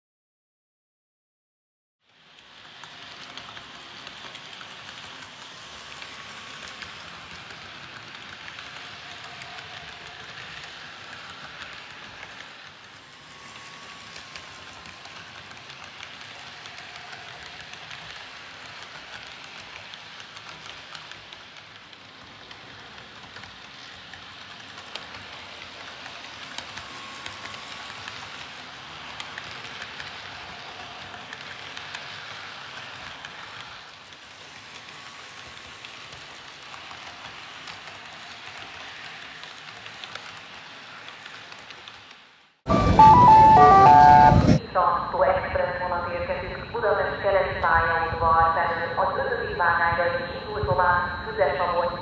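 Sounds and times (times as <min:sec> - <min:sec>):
model train wheels rattling: 0:02.1 - 0:42.4.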